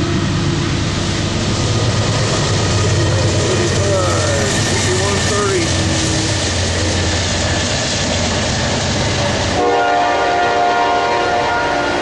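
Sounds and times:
train rushing on rails: 0:00.0 - 0:12.0
locomotive horn chord: 0:09.6 - 0:12.0.

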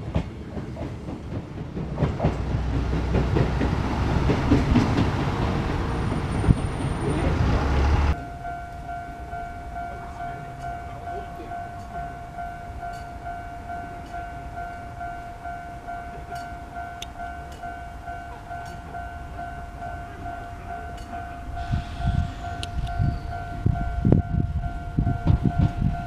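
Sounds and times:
train rumble: 0:00.0 - 0:26.0
level crossing bell ringing: 0:08.1 - 0:26.0.

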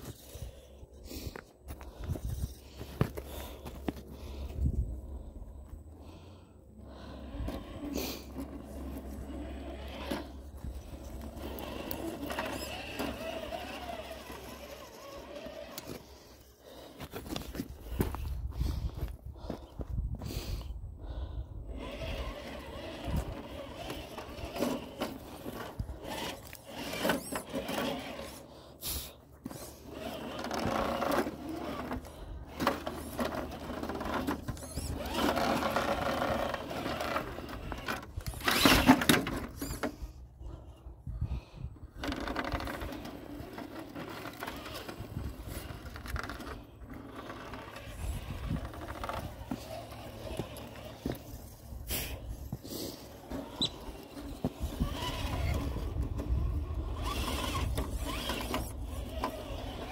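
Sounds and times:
electric motor and drivetrain whining: 0:00.0 - 0:18.8, 0:20.3 - 0:59.9
rocks clicking and scraping: 0:07.4 - 0:19.6.

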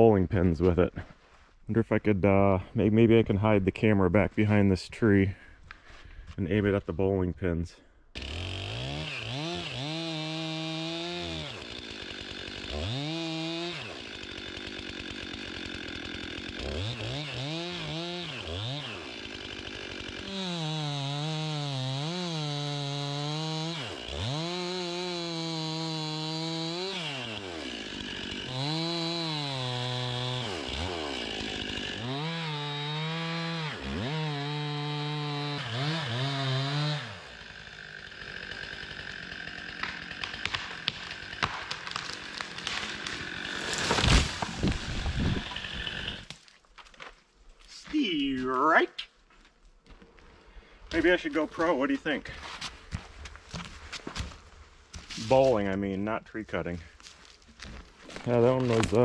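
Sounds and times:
chainsaw cutting tree: 0:08.1 - 0:46.4, 0:52.6 - 0:55.4.

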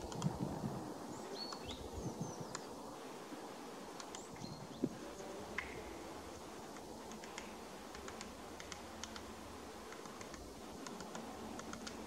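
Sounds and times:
woodpecker tapping on bark: 0:06.7 - 0:09.3.

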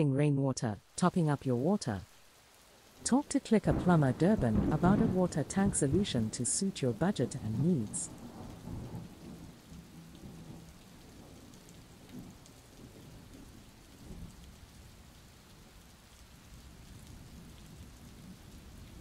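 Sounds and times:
steady rain falling: 0:00.8 - 0:19.0
distant thunder rumbling: 0:03.0 - 0:14.4.

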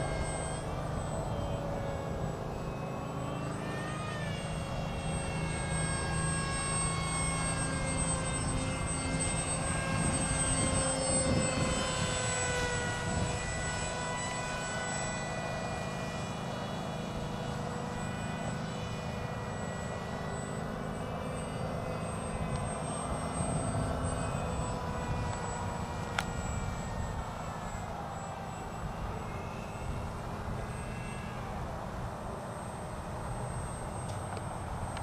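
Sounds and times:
electric motor and propeller whining: 0:00.0 - 0:35.0.

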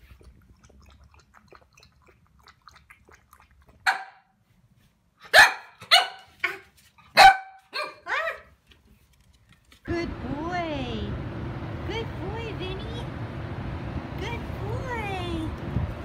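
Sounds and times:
puppy lapping water: 0:00.0 - 0:04.3
puppy barking: 0:03.9 - 0:04.2, 0:05.2 - 0:08.5.

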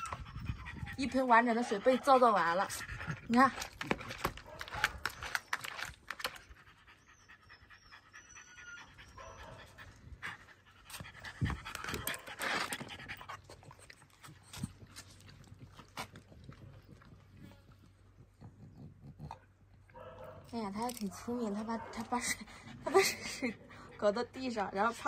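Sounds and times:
dog panting hard: 0:00.0 - 0:05.4, 0:08.9 - 0:14.9, 0:21.9 - 0:25.0.

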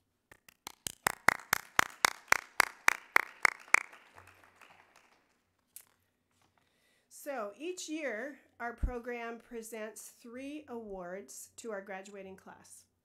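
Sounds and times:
person clapping close: 0:00.0 - 0:06.0
scattered clapping: 0:00.3 - 0:05.4.

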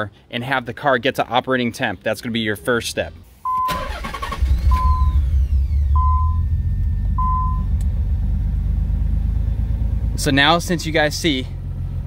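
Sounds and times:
dashboard warning chime beeping: 0:03.4 - 0:05.2, 0:05.9 - 0:06.5, 0:07.2 - 0:07.7
car engine starting and idling: 0:03.4 - 0:12.0.

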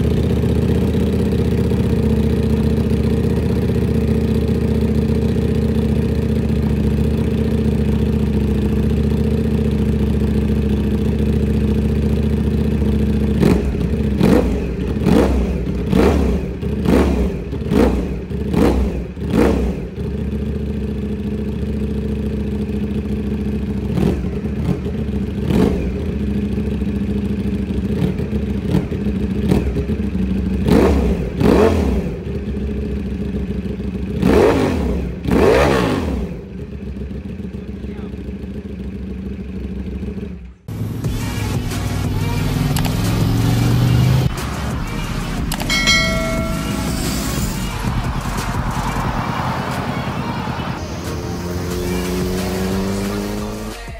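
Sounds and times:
motorcycle engine idling: 0:00.0 - 0:43.0.

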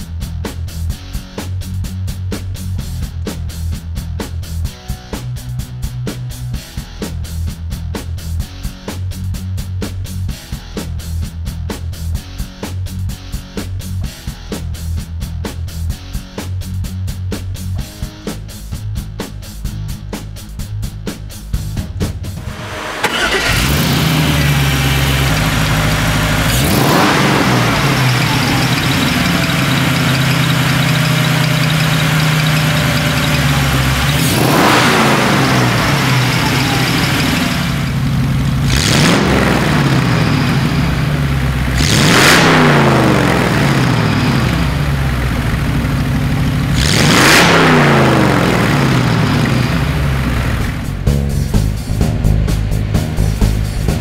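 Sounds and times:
car engine starting and idling: 0:22.2 - 0:54.0
car engine revving: 0:22.4 - 0:54.0.

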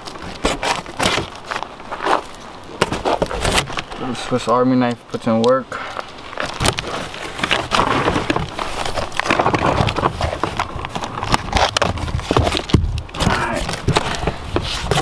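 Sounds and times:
knife cutting cardboard: 0:02.8 - 0:03.8, 0:06.6 - 0:15.0.

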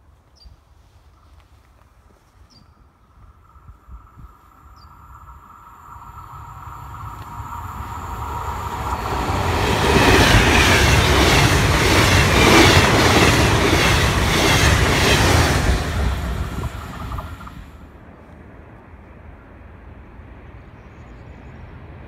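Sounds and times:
train wheels rushing on rail: 0:03.5 - 0:17.9.

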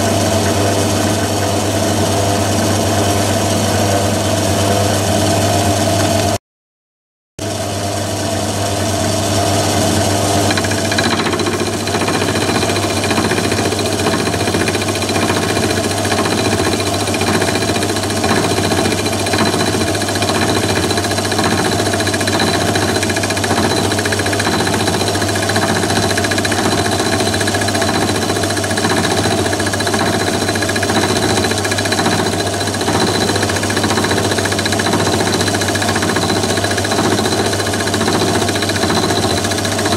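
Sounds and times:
lathe motor hum: 0:08.3 - 0:39.9
cutter chattering on metal: 0:10.2 - 0:39.9.

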